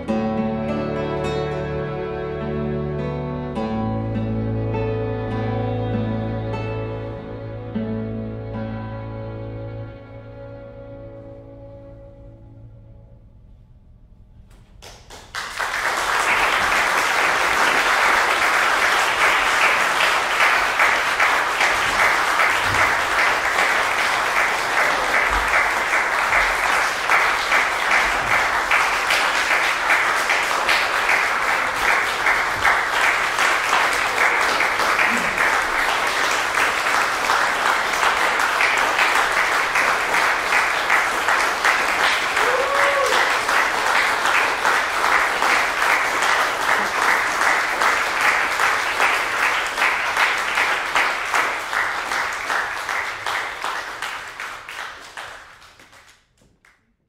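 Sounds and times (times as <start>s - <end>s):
audience applauding: 14.8s - 56.8s.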